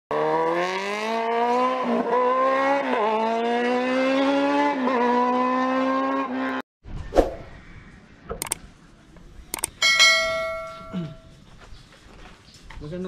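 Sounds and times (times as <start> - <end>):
engine accelerating hard: 0.1 - 6.6.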